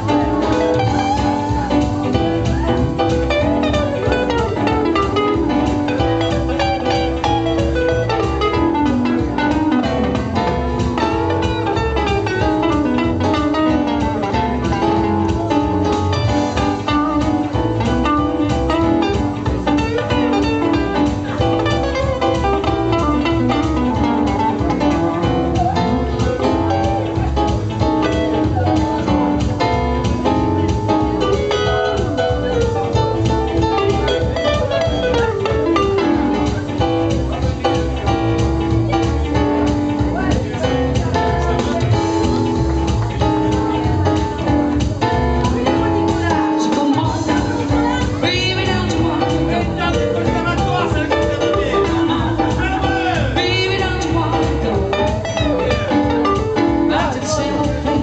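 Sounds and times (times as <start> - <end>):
electric guitar: 0.0 - 58.0
keyboard: 0.0 - 58.0.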